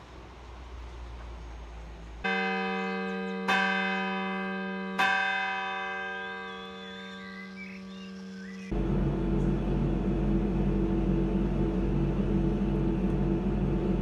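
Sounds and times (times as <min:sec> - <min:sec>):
church bell ringing: 0:02.2 - 0:07.9.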